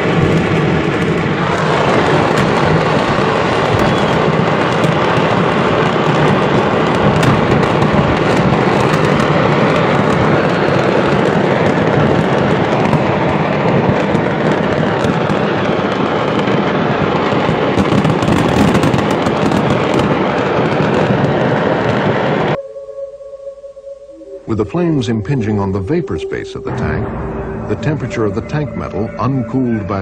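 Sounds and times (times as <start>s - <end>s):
fireworks crackling and banging: 0.0s - 22.6s
low rumble: 22.5s - 30.0s.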